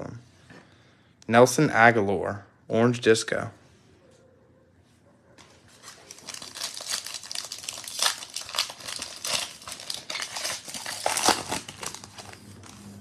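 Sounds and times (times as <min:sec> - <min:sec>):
foil wrapper crinkling: 0:05.7 - 0:12.9.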